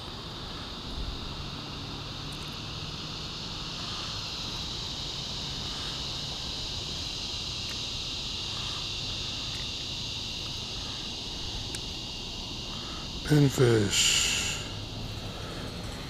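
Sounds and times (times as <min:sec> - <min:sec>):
insects chorus shrilling: 0:00.0 - 0:16.0.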